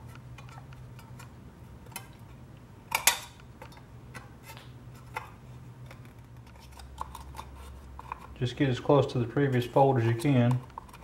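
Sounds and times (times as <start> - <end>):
steady low hum: 0.0 - 11.0
metal clicking and crinkling: 9.4 - 11.0.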